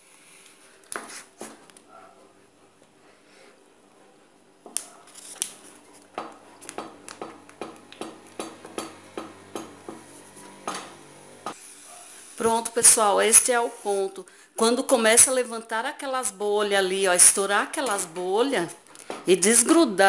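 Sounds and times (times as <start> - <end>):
wooden spoon knocking on metal pan: 6.2 - 11.6.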